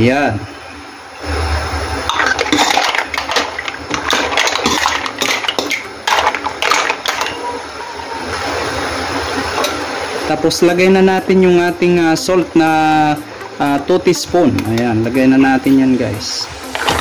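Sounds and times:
mussel shells clattering in a pan: 0:02.1 - 0:07.7.

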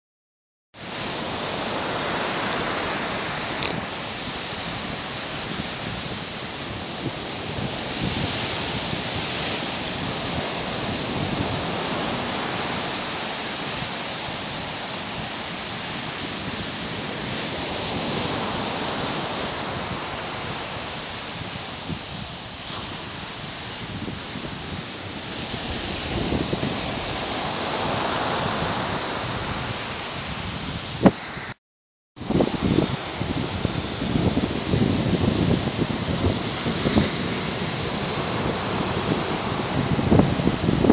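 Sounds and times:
low wind buffeting: 0:00.8 - 0:31.6, 0:32.2 - 0:40.9
wind rushing over microphone: 0:00.8 - 0:31.6, 0:32.2 - 0:40.9.

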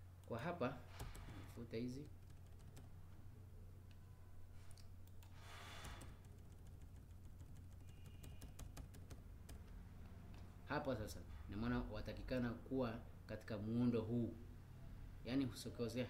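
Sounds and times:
low steady hum: 0:00.0 - 0:05.3
computer keys and mouse clicks: 0:04.7 - 0:10.4.

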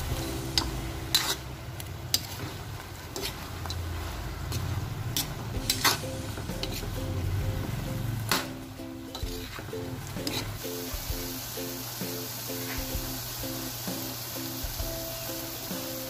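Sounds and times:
food sizzling in a pan: 0:00.0 - 0:16.0
utensil scraping and clanking on pan: 0:00.4 - 0:07.2, 0:08.3 - 0:10.8.

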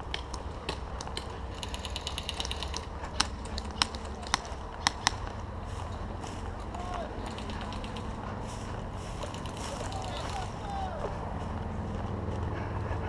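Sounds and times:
sharp clicks: 0:00.0 - 0:05.4, 0:06.7 - 0:08.3, 0:09.2 - 0:10.5
mechanical ratcheting rattle: 0:01.5 - 0:02.8.

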